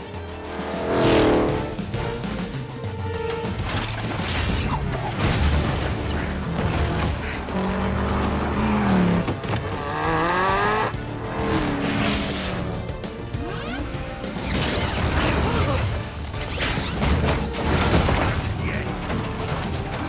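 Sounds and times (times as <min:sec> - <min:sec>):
car engines revving: 0:00.0 - 0:02.0, 0:04.9 - 0:14.4
film music score: 0:00.0 - 0:20.0
tyres on the road: 0:04.8 - 0:20.0.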